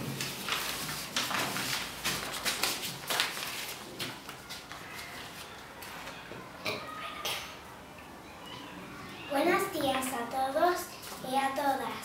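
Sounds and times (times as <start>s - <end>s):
paper cards rustling: 0.0s - 6.2s.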